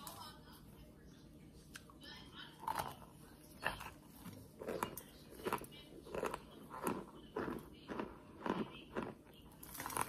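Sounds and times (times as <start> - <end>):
cornstarch crunching and squeaking: 3.6 - 10.0.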